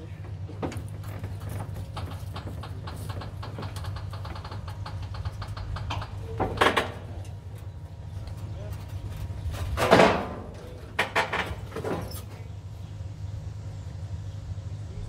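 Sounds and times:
jeep rolling on wooden deck: 0:00.0 - 0:13.8
low hum: 0:12.4 - 0:15.0.

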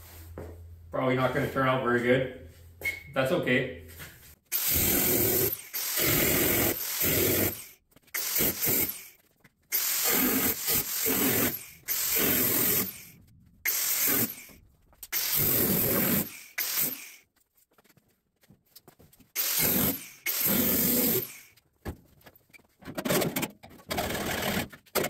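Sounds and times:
angle grinder cutting metal: 0:04.5 - 0:09.1, 0:09.7 - 0:13.1, 0:13.7 - 0:14.5, 0:19.4 - 0:21.4.

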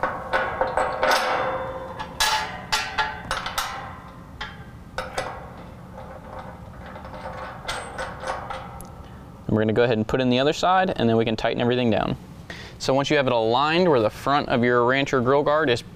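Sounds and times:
metal hardware clinking: 0:00.0 - 0:09.2.

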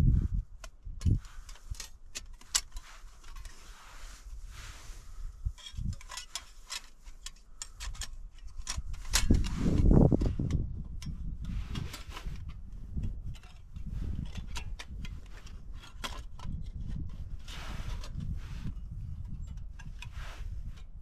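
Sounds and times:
light clicks of metal item: 0:05.5 - 0:17.2.

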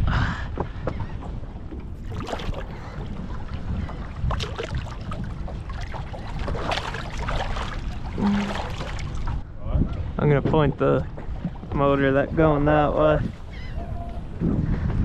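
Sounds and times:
wind buffeting microphone: 0:00.0 - 0:15.0
water sloshing against boat: 0:00.5 - 0:15.0
fish splashing away: 0:05.7 - 0:09.2.

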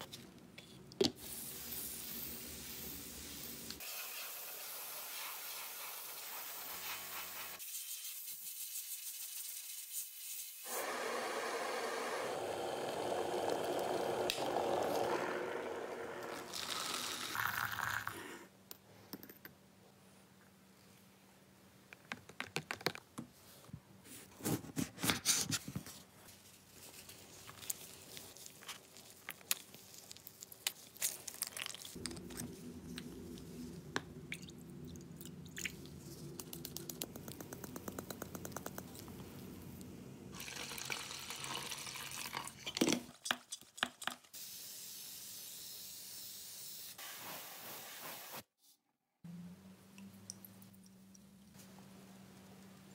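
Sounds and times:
spray paint hissing: 0:01.2 - 0:11.0, 0:44.3 - 0:48.4
liquid pouring into plastic cup: 0:16.2 - 0:18.2, 0:40.4 - 0:42.8.

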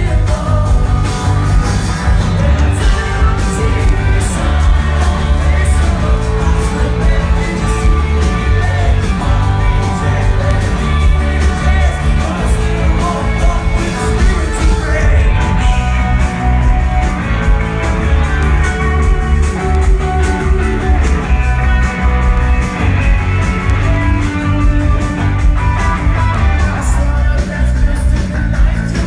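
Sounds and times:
person singing: 0:00.0 - 0:17.1
drums: 0:00.0 - 0:29.0
electric guitars: 0:00.0 - 0:29.0.

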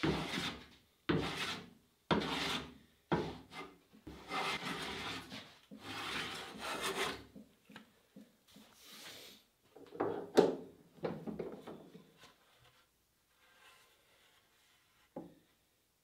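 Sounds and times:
hand plane strokes on wood: 0:00.0 - 0:07.3.

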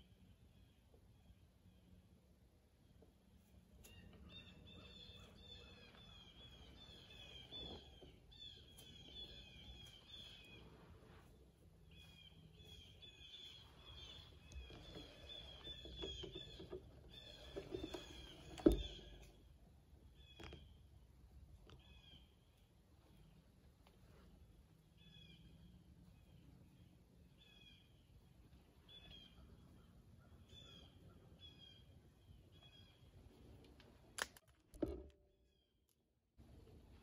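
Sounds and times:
bird chirping: 0:03.8 - 0:20.9, 0:25.0 - 0:33.3.

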